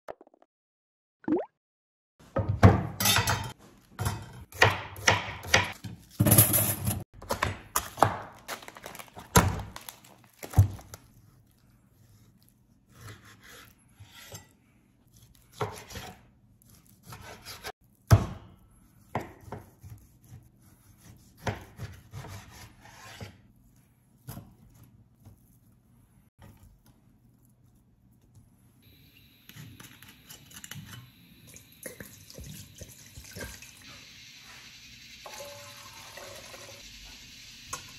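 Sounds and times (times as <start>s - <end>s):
knife sawing through meat: 12.2s - 14.4s, 19.7s - 23.3s.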